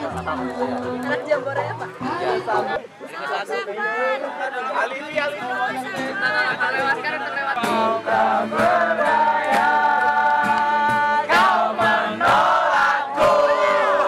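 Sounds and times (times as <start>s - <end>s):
group of voices singing: 7.6s - 14.0s.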